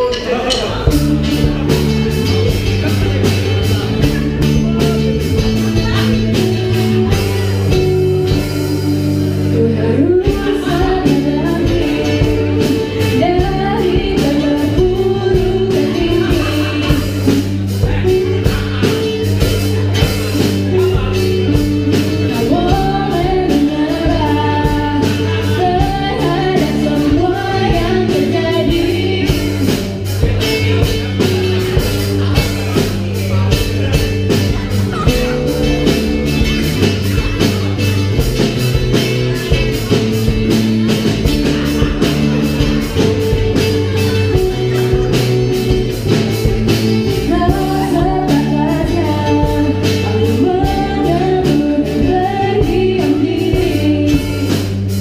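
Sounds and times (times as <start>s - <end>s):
drums keeping a steady beat: 0.0s - 55.0s
electric bass: 0.0s - 55.0s
strummed acoustic guitars: 0.0s - 55.0s
woman singing: 5.8s - 31.0s, 46.7s - 55.0s.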